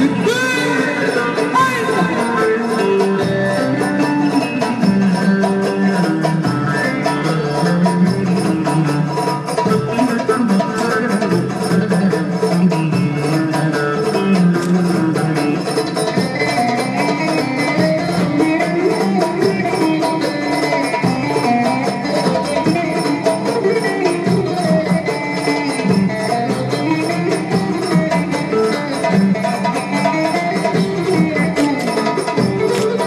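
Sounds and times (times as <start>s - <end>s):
long-necked lute strummed and picked: 0.0s - 33.0s.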